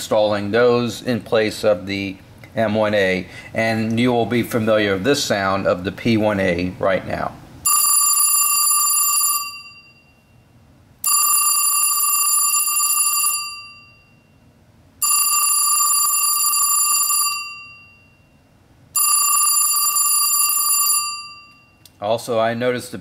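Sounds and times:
telephone ringer ringing: 7.6 - 21.8.

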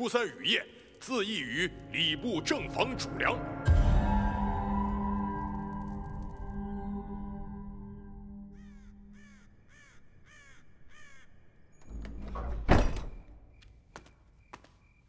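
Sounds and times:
crow cawing: 8.5 - 11.6.

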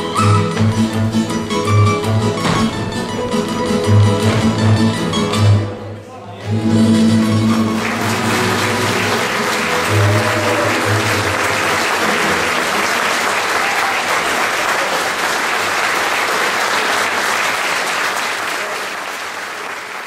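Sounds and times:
held music notes: 0.0 - 12.9
audience applauding: 6.4 - 20.0.

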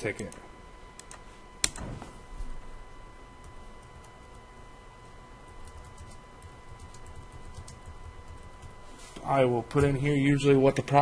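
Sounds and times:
keyboard typing: 5.6 - 8.8.

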